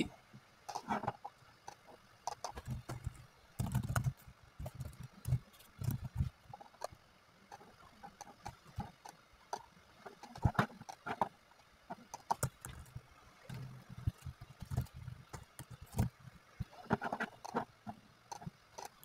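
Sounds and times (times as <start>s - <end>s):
keyboard and mouse clicking: 1.7s - 6.9s, 12.0s - 12.9s.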